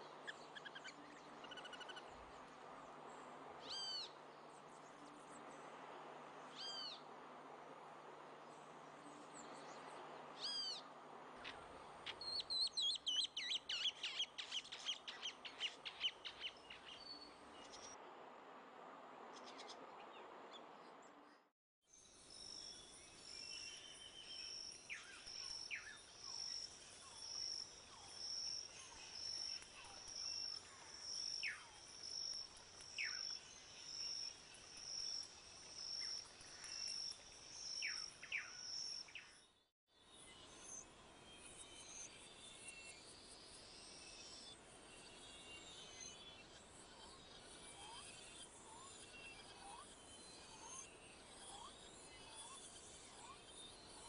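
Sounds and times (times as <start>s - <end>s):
forest background: 0.0s - 54.0s.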